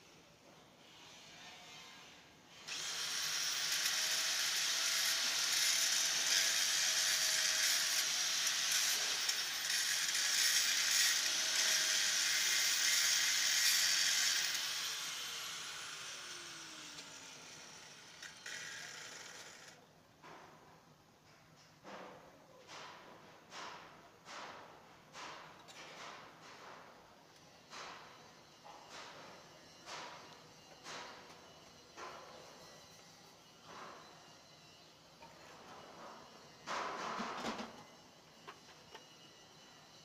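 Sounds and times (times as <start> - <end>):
angle grinder grinding steel: 2.7 - 19.8.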